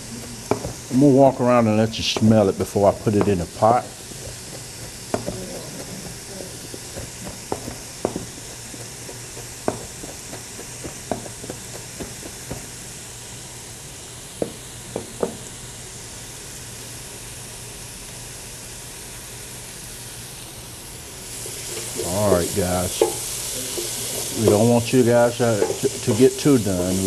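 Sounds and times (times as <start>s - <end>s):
vegetables sizzling in pot: 0.0s - 27.0s
wooden spoon knocking on pot: 0.5s - 0.8s, 2.0s - 2.4s, 3.2s - 3.4s, 4.5s - 12.7s, 14.4s - 15.4s, 22.3s - 26.2s.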